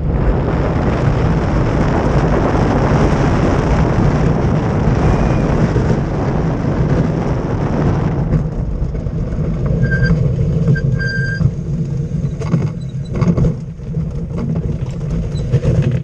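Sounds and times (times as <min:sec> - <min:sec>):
wheels rumbling on road: 0:00.0 - 0:16.0
wind: 0:00.0 - 0:16.0
high squeaks: 0:09.8 - 0:11.5, 0:12.2 - 0:13.3.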